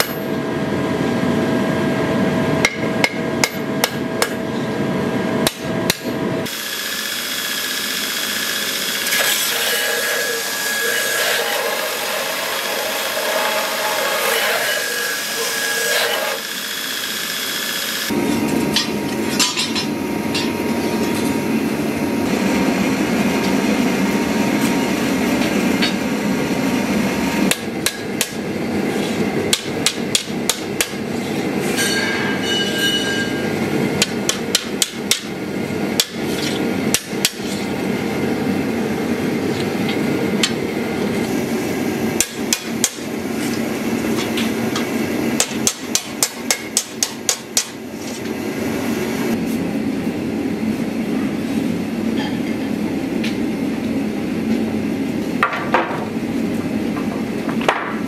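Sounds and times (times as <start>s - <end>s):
gas forge roaring: 0.0s - 58.0s
hammer striking hot steel on anvil: 2.6s - 4.4s, 5.4s - 6.2s, 18.6s - 21.3s, 27.5s - 28.5s, 29.5s - 31.0s, 31.7s - 35.3s, 36.0s - 37.5s, 42.2s - 43.1s, 45.4s - 47.8s.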